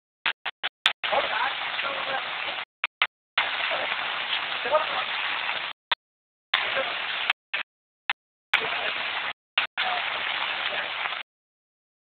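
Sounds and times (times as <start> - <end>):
rushing floodwater hiss: 1.0 - 2.7, 3.4 - 5.8, 6.6 - 7.3, 8.6 - 11.2.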